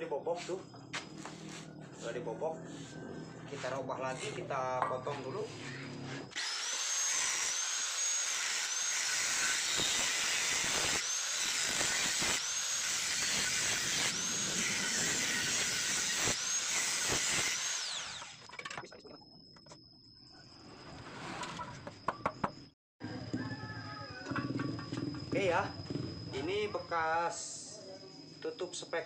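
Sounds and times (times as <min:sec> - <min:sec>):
angle grinder cutting metal: 0:05.6 - 0:18.5
grinder spinning down: 0:05.8 - 0:18.5.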